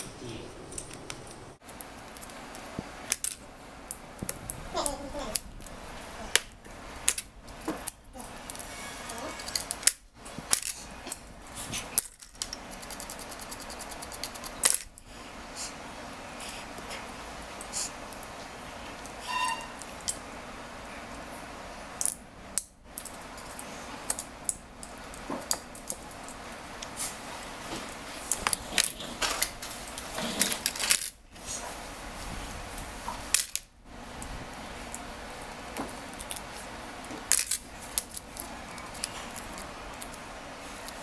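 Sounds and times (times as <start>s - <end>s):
metallic clicks of tiny screws: 11.9s - 15.0s.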